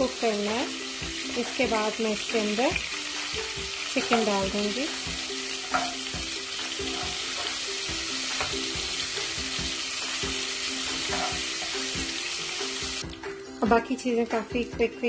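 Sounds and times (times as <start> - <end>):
garlic sizzling in hot oil: 0.0 - 14.5
spatula scraping and tapping pot: 11.0 - 11.7.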